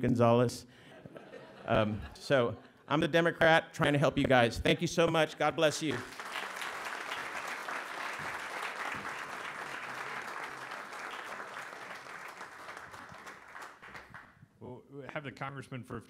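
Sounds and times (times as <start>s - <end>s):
audience applauding: 5.8s - 14.4s.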